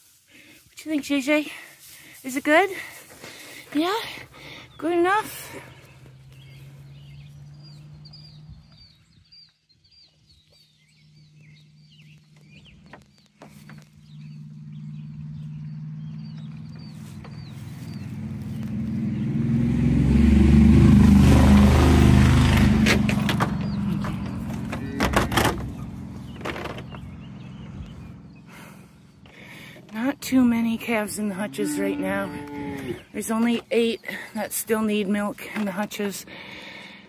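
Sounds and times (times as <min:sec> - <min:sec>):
birds chirping: 0:00.0 - 0:37.0
vehicle passing by: 0:03.5 - 0:09.2, 0:13.5 - 0:33.4.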